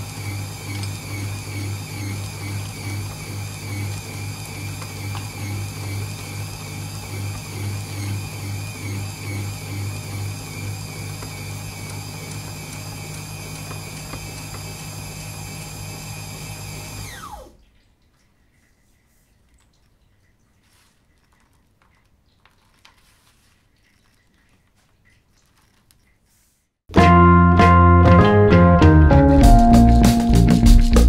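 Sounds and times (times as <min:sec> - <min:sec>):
meat grinder motor running: 0:00.0 - 0:17.5
motor winding down: 0:00.0 - 0:17.6.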